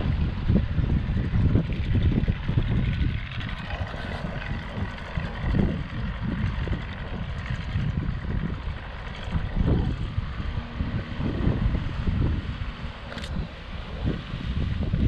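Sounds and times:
outboard motor drone: 0.0s - 15.0s
wind buffeting microphone: 0.0s - 15.0s.

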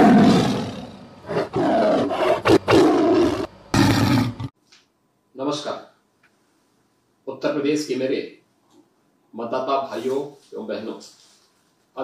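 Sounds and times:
tiger roaring: 0.0s - 4.5s.

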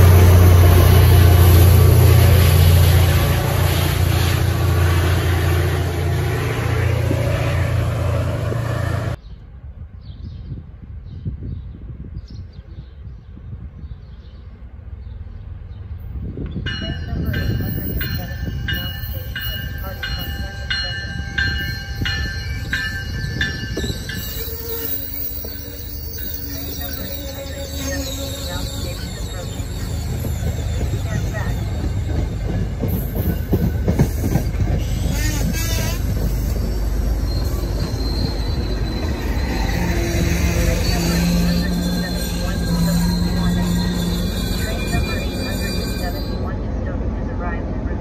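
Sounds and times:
diesel locomotive engine drone: 0.0s - 10.0s, 14.4s - 48.0s
train rumble: 0.0s - 10.0s, 10.6s - 48.0s
wheel squeal: 23.8s - 46.3s.

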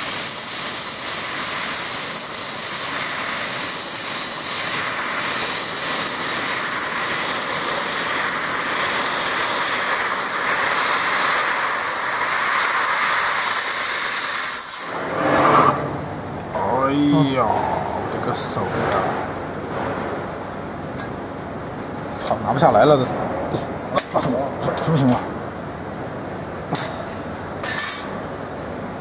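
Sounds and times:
assist gas jet hissing: 0.0s - 15.9s
high whine: 14.8s - 21.1s.

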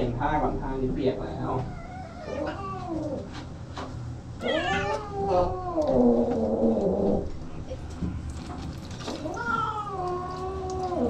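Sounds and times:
cat meowing: 1.6s - 3.3s, 4.4s - 7.1s, 9.1s - 11.0s.

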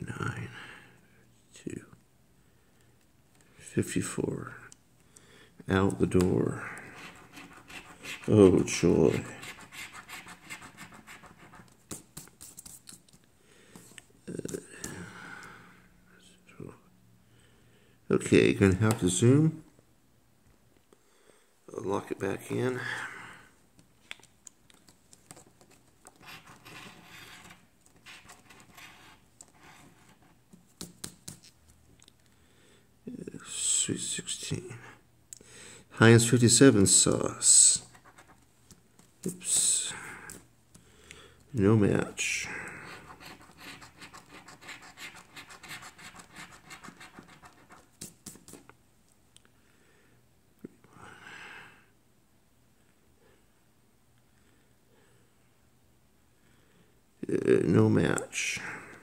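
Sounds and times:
coin scraping scratch card: 6.9s - 8.4s, 9.1s - 12.9s, 26.1s - 30.4s, 42.8s - 48.6s.

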